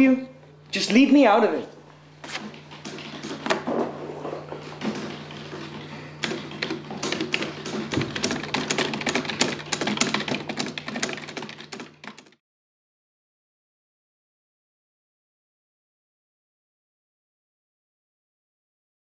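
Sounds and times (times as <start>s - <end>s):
keyboard typing clicks: 4.9s - 12.4s.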